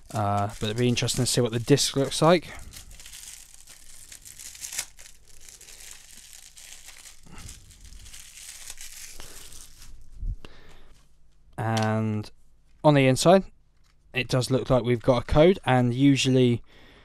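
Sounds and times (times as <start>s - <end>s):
plastic wrap crinkling: 0.0s - 10.2s.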